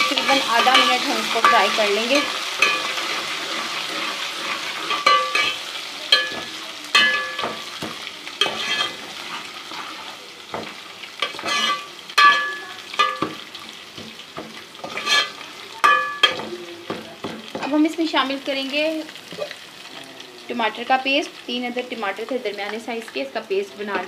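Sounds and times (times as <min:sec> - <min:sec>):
onions frying and sizzling: 0:00.0 - 0:24.0
spoon knocking on a pot: 0:05.0 - 0:08.0, 0:12.2 - 0:13.4, 0:15.8 - 0:17.7
spoon scraping a pot: 0:08.4 - 0:10.2, 0:11.2 - 0:13.3, 0:14.8 - 0:16.4.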